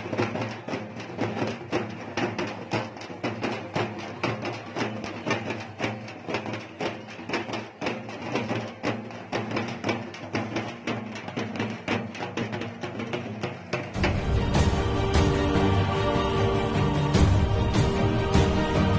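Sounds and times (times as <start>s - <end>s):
quick drum strikes: 10.9s - 18.9s.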